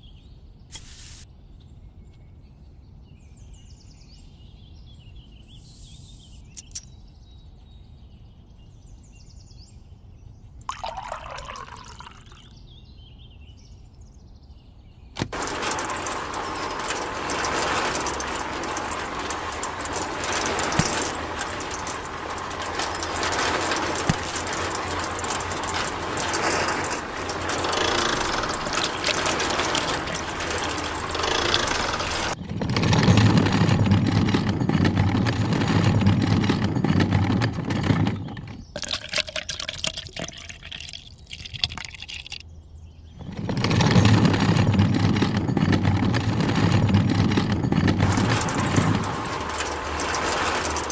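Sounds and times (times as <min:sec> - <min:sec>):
wet concrete pouring: 0:10.6 - 0:12.4, 0:15.3 - 0:42.4.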